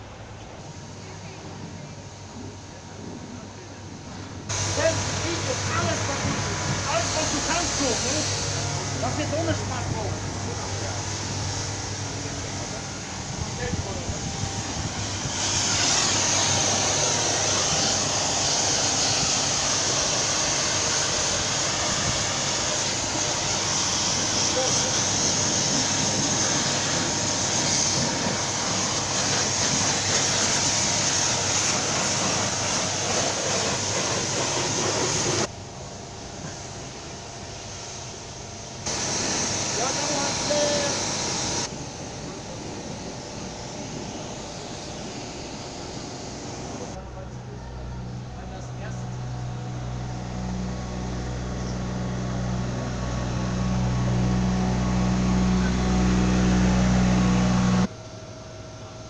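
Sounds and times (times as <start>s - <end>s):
low mechanical hum: 0.0s - 59.0s
pressure washer spraying: 4.5s - 35.5s, 38.9s - 41.7s, 49.2s - 57.9s.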